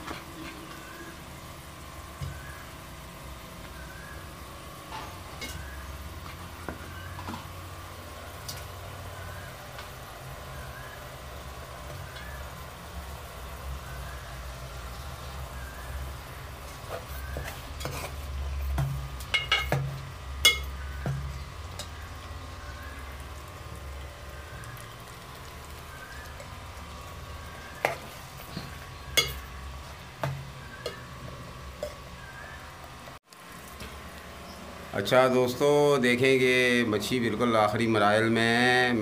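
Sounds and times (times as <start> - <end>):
steady low hum: 0.0 - 37.7
light sizzle: 0.0 - 39.0
ladle stirring in a pot: 16.5 - 22.0
ladle clinking on pot: 20.4 - 20.7.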